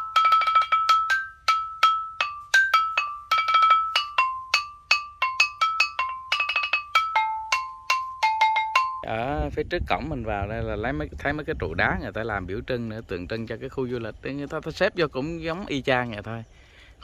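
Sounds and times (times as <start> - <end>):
mallet percussion melody: 0.0 - 9.3.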